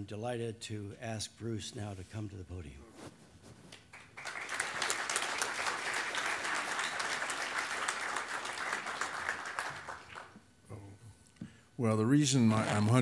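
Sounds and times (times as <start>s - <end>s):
audience applauding: 3.9s - 10.4s.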